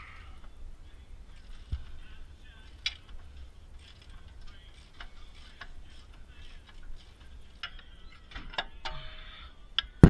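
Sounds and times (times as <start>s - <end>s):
metal hardware clicking and clinking: 6.6s - 9.1s.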